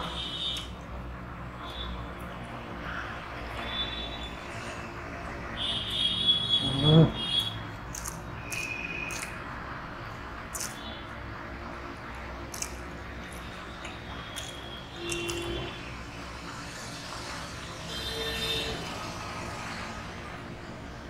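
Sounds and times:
wet chewing and lip smacks: 7.4 - 9.4, 10.4 - 10.9, 12.1 - 15.6.

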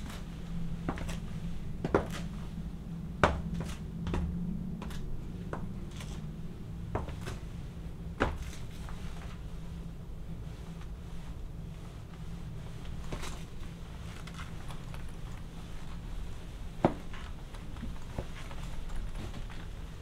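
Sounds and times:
faint low hum: 0.0 - 20.0
heels clicking on wooden floor: 1.8 - 2.3, 16.8 - 19.6.

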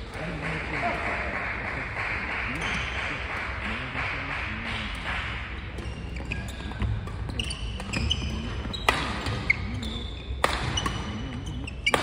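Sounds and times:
shoes squeaking on floor: 5.9 - 12.0
rackets hitting shuttlecock: 6.7 - 9.5, 10.4 - 12.0.

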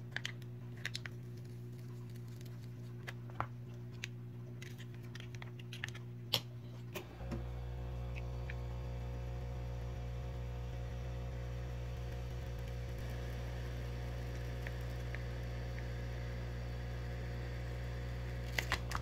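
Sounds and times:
heat gun humming and hissing: 7.0 - 19.0.

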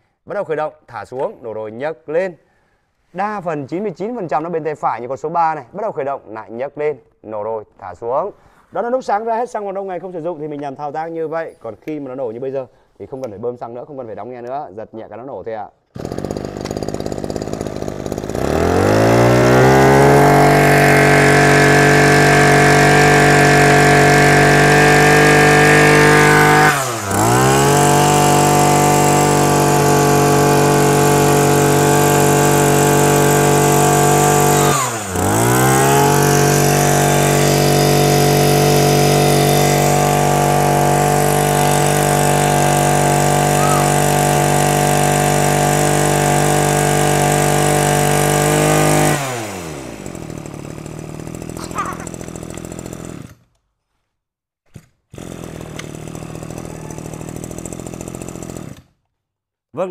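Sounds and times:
brush cutter engine running: 16.0 - 53.4, 55.1 - 58.9.

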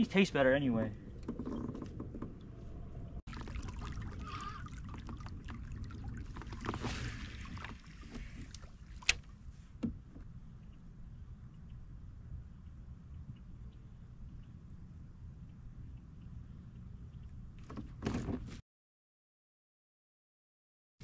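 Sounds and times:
water lapping around boat: 0.9 - 10.9.

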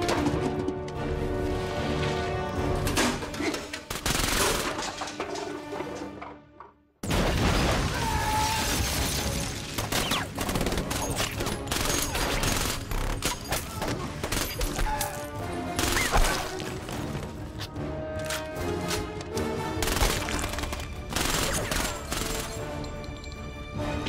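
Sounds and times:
action music score: 0.0 - 24.0
rapid automatic gunfire: 3.9 - 4.6, 19.8 - 22.5.

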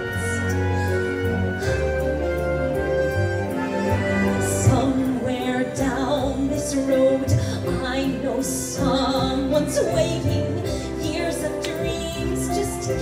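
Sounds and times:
orchestral accompaniment: 0.0 - 13.0
woman singing show tune: 4.6 - 13.0.

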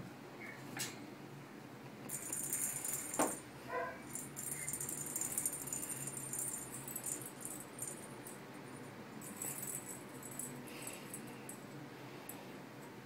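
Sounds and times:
toy balls with bells jingling: 2.1 - 11.7.

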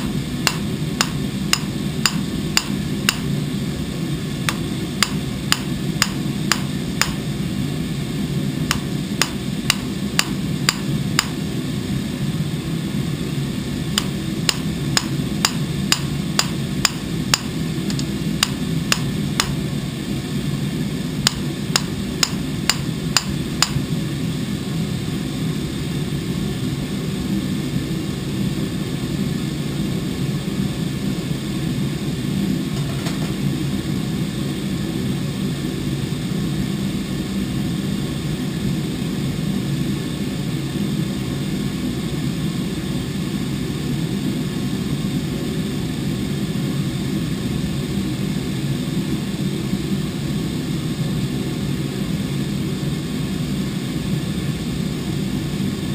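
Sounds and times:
steady low hum: 0.0 - 55.9
hammer striking steel on anvil: 0.5 - 3.3, 4.5 - 7.2, 8.7 - 11.4, 14.0 - 19.6.

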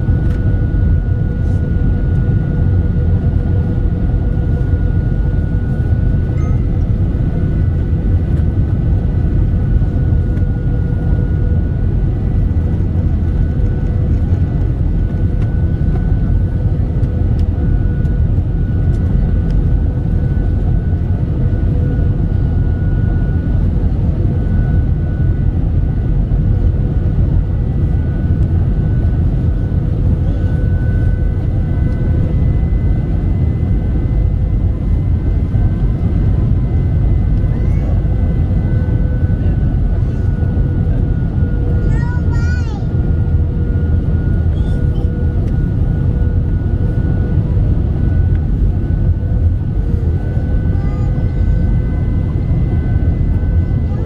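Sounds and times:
aircraft cabin engine rumble: 0.0 - 54.0.

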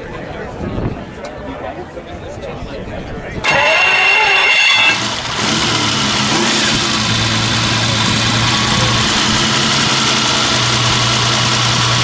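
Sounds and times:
car engine idling: 3.5 - 12.0.

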